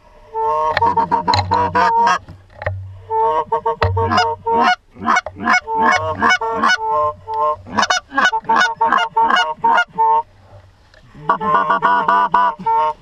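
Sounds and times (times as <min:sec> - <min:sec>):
low hum: 0:00.0 - 0:09.4
goose honking: 0:00.2 - 0:02.3, 0:02.9 - 0:10.3, 0:11.1 - 0:13.0.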